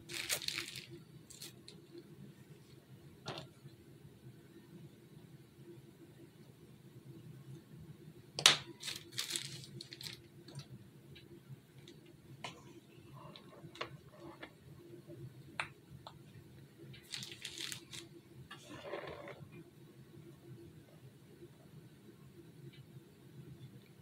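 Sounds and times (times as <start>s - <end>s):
plastic bag crinkling: 0.0s - 1.8s, 8.7s - 10.3s, 17.0s - 18.1s.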